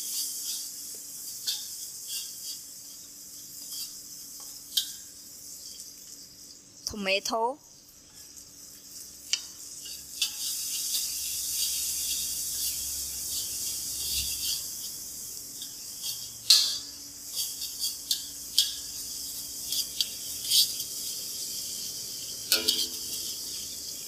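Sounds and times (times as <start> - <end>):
utensil scraping a pan: 0.0 - 5.8, 8.1 - 23.9
vegetables sizzling in hot oil: 0.0 - 24.0.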